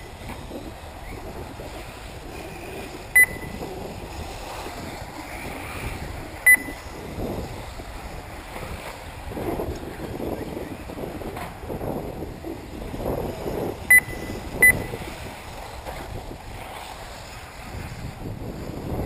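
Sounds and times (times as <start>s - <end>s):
electric rc cars running: 0.0s - 19.0s
wind buffeting microphone: 0.0s - 19.0s
short high beeps: 3.2s - 3.6s, 6.5s - 6.9s, 13.9s - 15.0s.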